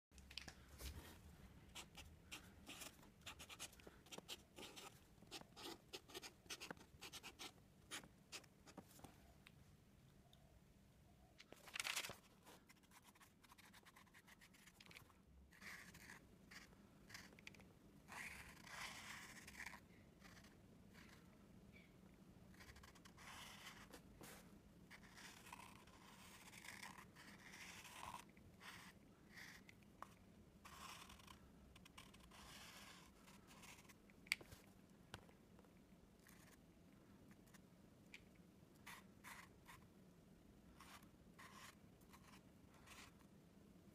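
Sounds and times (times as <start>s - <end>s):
marker drawing on paper: 1.7s - 8.8s, 30.6s - 34.0s
paper pages rustling: 11.4s - 12.6s.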